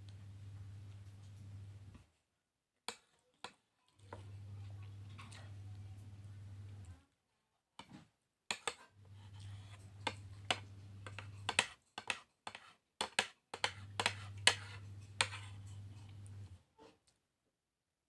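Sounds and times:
low steady hum: 0.0s - 2.0s, 4.0s - 7.0s, 9.0s - 11.6s, 13.7s - 16.6s
plastic spoon scraping a plate: 8.5s - 16.5s.

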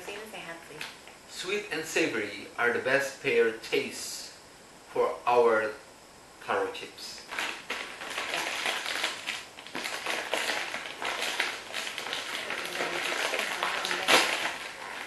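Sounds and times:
plastic snack bag crinkling: 7.2s - 15.0s.

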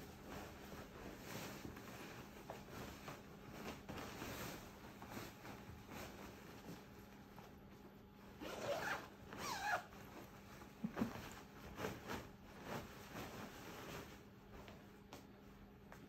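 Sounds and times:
papery fabric rustling: 0.0s - 16.0s
zipper pulled up: 8.4s - 10.0s.

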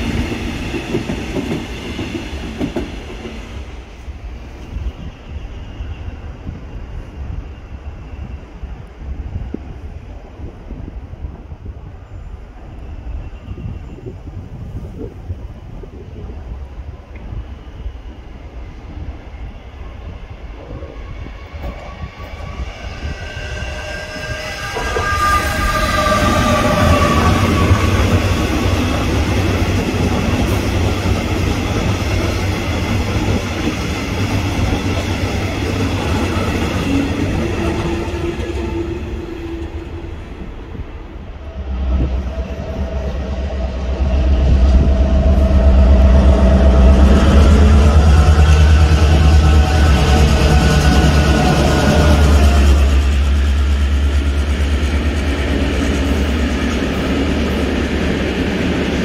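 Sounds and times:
train rumbling past: 0.0s - 59.0s.

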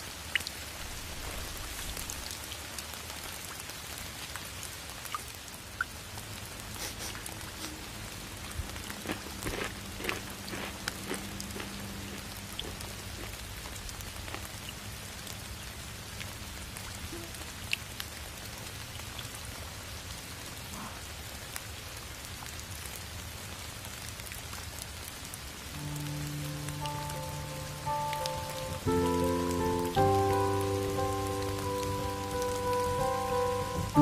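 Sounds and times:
steady rain: 0.0s - 34.0s
held musical notes: 25.7s - 34.0s.

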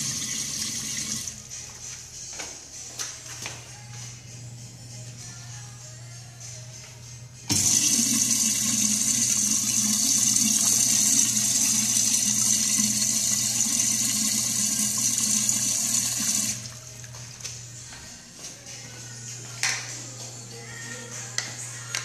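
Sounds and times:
urinal flushing: 0.0s - 1.4s, 7.5s - 16.8s.

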